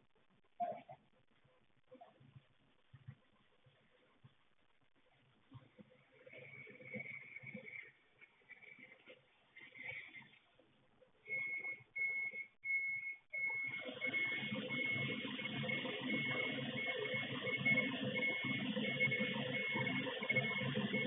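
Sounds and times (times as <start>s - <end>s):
reversing alarm beeps: 11.3s - 21.0s.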